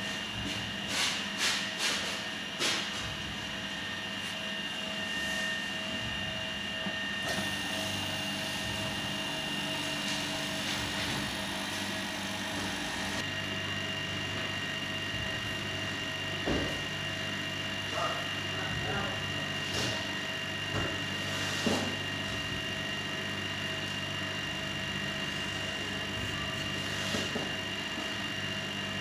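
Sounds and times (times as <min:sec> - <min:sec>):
freeze dryer humming with high whine: 0:00.0 - 0:29.0.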